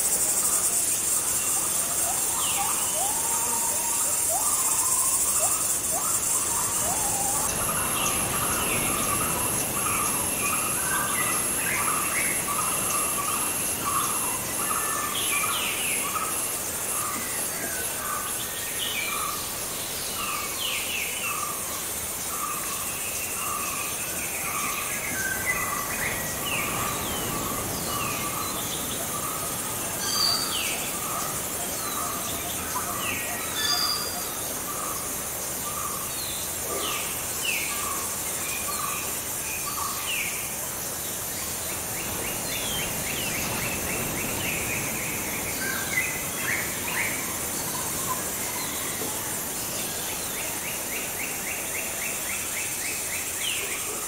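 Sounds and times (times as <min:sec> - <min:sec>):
birds chirping: 0:00.9 - 0:39.0.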